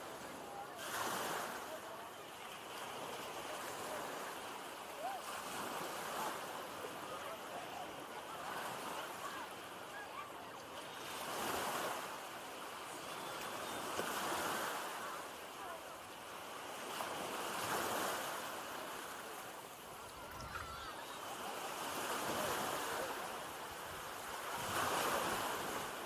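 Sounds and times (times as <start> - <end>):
faint distant voices: 0.0 - 26.0
small waves washing over sand: 0.0 - 26.0.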